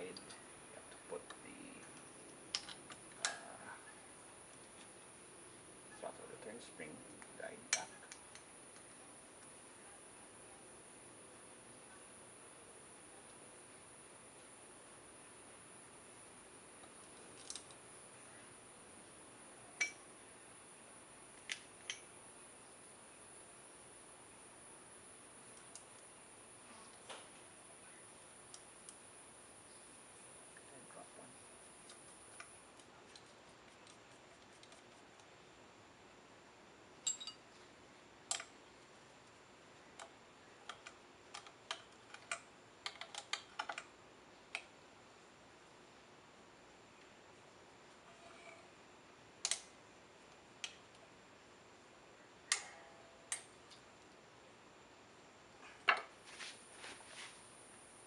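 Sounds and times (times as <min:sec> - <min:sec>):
crickets chirring: 0:00.0 - 0:35.1
small metal parts clicking: 0:17.0 - 0:17.8, 0:37.0 - 0:37.4
small metal parts clinking: 0:37.0 - 0:37.4.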